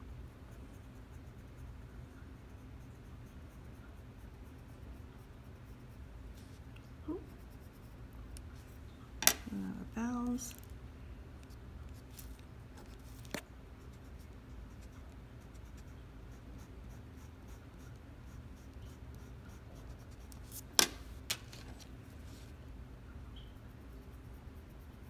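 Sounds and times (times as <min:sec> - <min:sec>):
pencil scratching on paper: 0:12.0 - 0:20.8.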